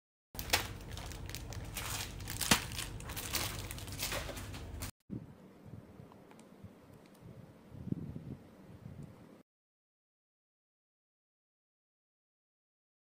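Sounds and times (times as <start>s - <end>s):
plastic wrapping crinkling: 0.4s - 4.9s.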